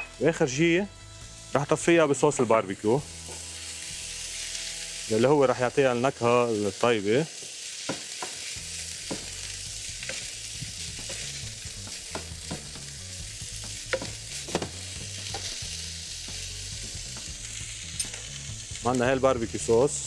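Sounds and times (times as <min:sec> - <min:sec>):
meat sizzling in a frying pan: 0:00.0 - 0:20.0
spatula knocking and scraping pan: 0:09.0 - 0:09.4, 0:10.0 - 0:13.0, 0:13.6 - 0:15.6.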